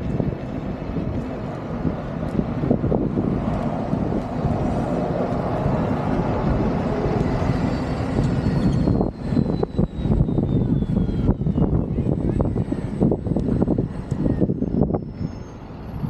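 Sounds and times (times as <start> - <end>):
wind buffeting microphone: 0.0 - 16.0
faint high motor whine: 5.8 - 16.0.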